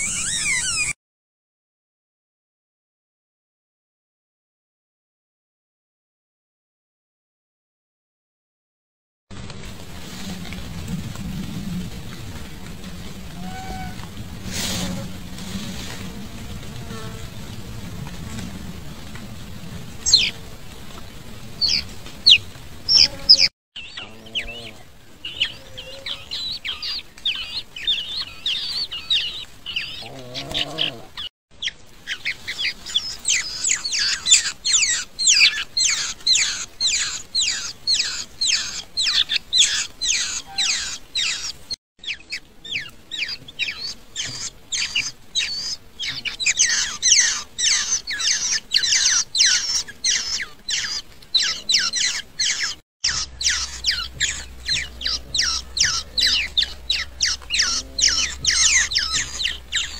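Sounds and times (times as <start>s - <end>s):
nestlings begging chirps: 0.0s - 1.0s, 20.0s - 20.4s, 21.6s - 59.9s
low warbling: 53.0s - 59.9s.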